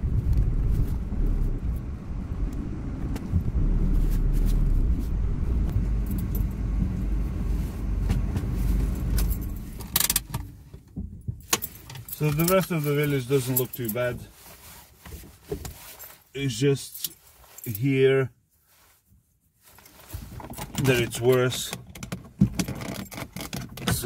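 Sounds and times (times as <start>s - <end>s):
low rumble in car cabin: 0.0s - 14.4s.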